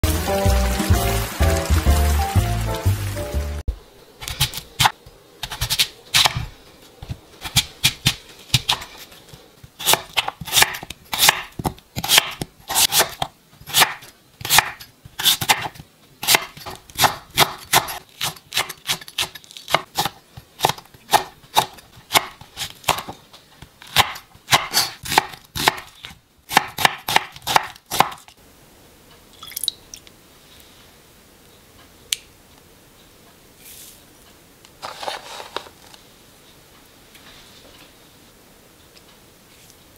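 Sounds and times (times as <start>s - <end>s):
knife chopping on wooden board: 9.8s - 19.0s, 19.7s - 23.2s, 23.9s - 25.9s, 26.5s - 28.2s.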